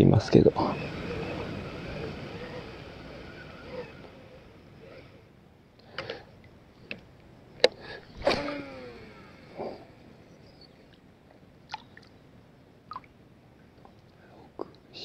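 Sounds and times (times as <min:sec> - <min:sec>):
reel spool spinning whine: 0:00.0 - 0:11.0.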